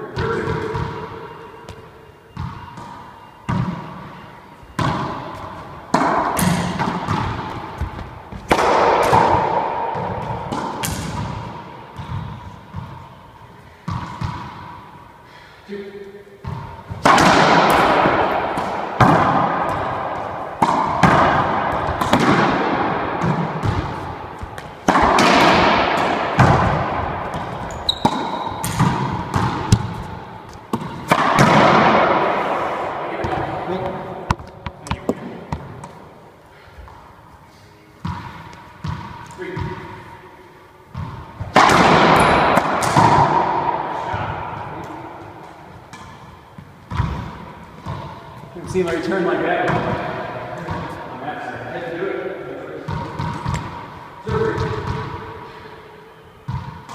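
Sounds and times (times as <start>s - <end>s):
ball bouncing on floor: 4.7s - 11.4s, 12.0s - 13.0s, 16.4s - 32.0s, 33.2s - 36.0s, 38.0s - 39.8s, 44.1s - 48.2s, 52.9s - 55.1s
racquetball smacks: 4.7s - 13.0s, 16.4s - 36.1s, 40.9s - 51.0s, 52.8s - 55.2s.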